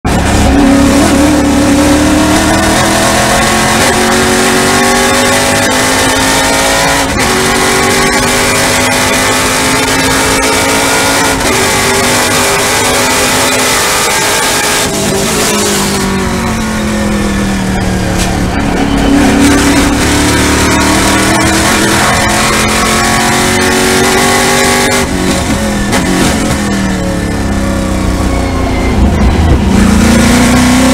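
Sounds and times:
race car engine accelerating: 0:00.1 - 0:30.9.

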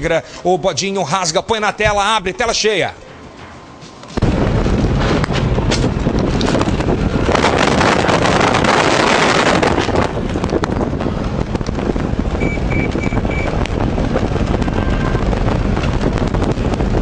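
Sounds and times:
engine and tyre rumble: 0:03.6 - 0:17.0
wind buffeting microphone: 0:04.2 - 0:17.0
short high beeps: 0:12.4 - 0:13.6.

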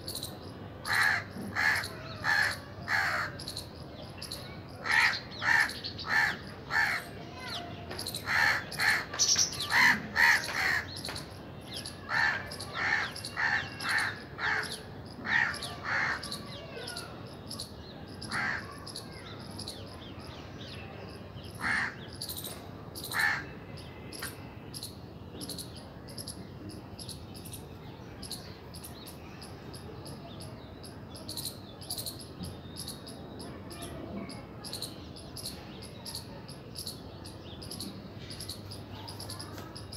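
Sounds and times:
crows cawing: 0:00.8 - 0:03.4, 0:04.8 - 0:07.5, 0:08.2 - 0:11.0, 0:12.0 - 0:16.6, 0:18.2 - 0:18.9, 0:21.5 - 0:22.1, 0:23.1 - 0:23.6.

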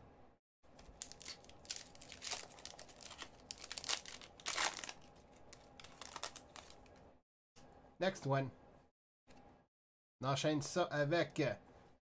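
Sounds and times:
foil wrapper crinkling: 0:00.8 - 0:07.0.

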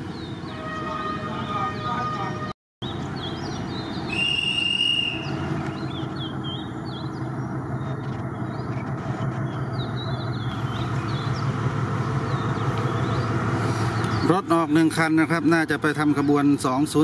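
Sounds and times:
birds chirping: 0:00.0 - 0:17.0
diesel locomotive engine droning: 0:00.0 - 0:17.0.

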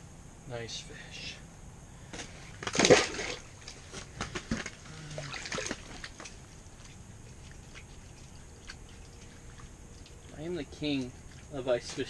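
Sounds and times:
handling bumps and knocks: 0:02.1 - 0:07.0
water splashing and dripping: 0:04.6 - 0:12.0.

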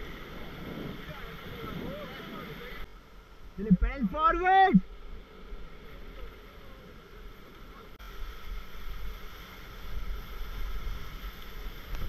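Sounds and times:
wind buffeting microphone: 0:00.0 - 0:02.8.

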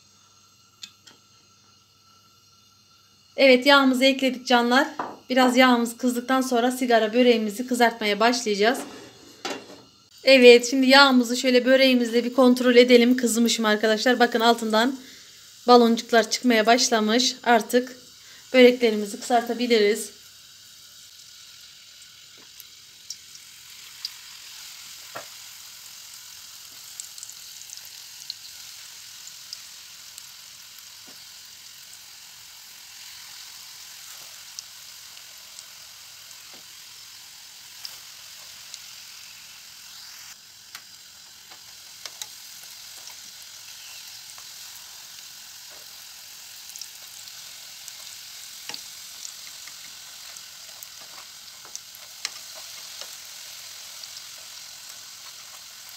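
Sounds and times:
pastries frying in oil: 0:00.0 - 0:55.9
oil popping and crackling: 0:20.9 - 0:55.9.

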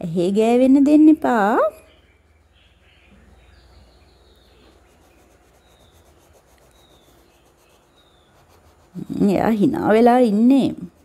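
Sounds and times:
steady low hum: 0:00.0 - 0:11.0
oil pastel rubbing on paper: 0:03.4 - 0:11.0.

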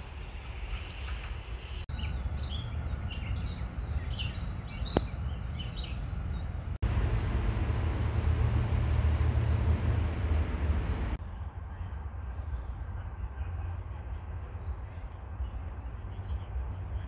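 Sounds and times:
songbirds chirping: 0:00.0 - 0:17.0
low rumble: 0:06.8 - 0:11.2.

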